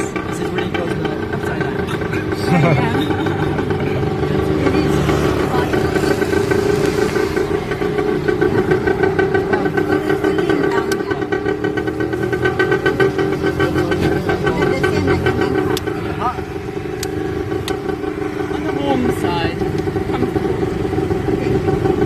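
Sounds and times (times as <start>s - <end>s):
tuk tuk engine running: 0.0s - 22.0s.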